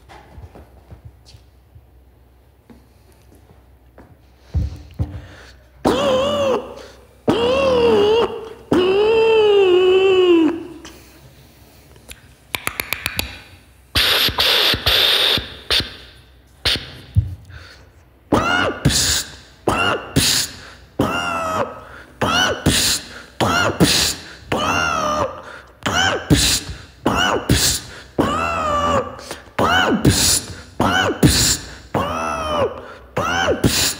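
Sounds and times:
beatboxer vocal clicks: 0:12.0 - 0:17.2
pitched vocal beatbox rhythm: 0:12.6 - 0:17.2, 0:18.3 - 0:33.9
breathy hissing bursts: 0:14.0 - 0:17.0.

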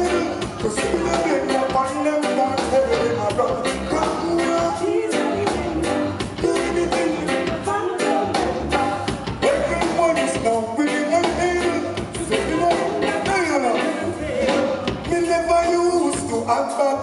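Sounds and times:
live reggae band: 0:00.0 - 0:17.0.

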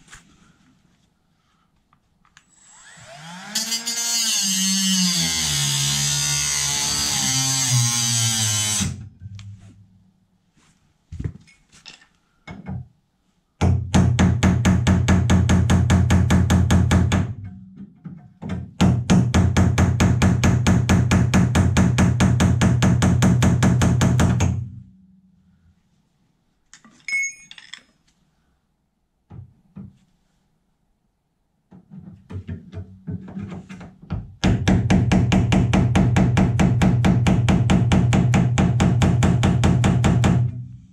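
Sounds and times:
light metallic clinks: 0:26.8 - 0:28.0.

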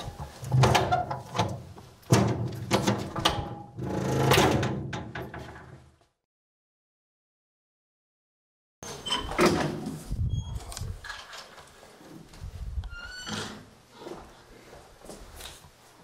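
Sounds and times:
heavy door creaking: 0:00.0 - 0:05.8, 0:08.8 - 0:11.1.

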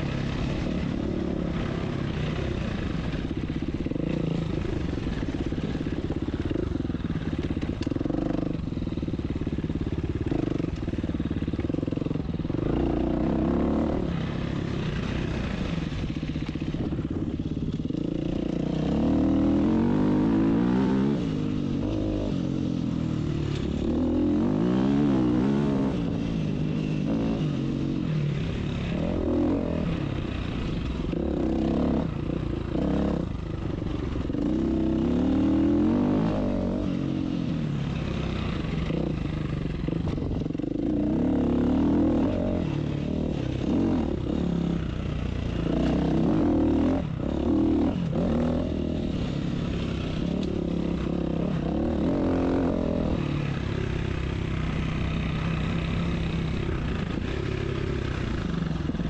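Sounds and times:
dirt bike engine revving: 0:11.7 - 0:16.1, 0:17.8 - 0:22.5, 0:38.0 - 0:59.0.

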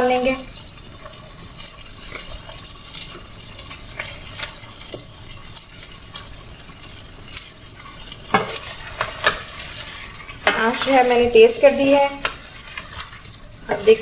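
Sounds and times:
spatula scraping a steel pot: 0:07.8 - 0:11.3.

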